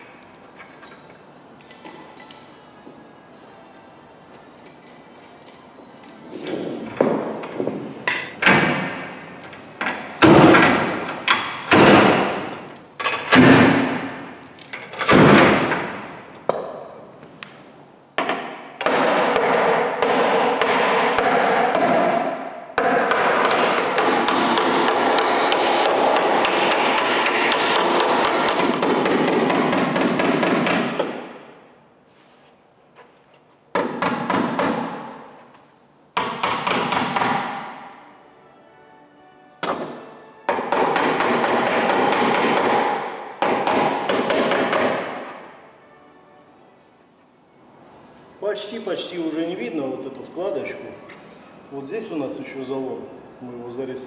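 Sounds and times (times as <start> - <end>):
hammer striking steel panel: 18.2 - 31.4, 36.2 - 37.9, 39.6 - 45.4.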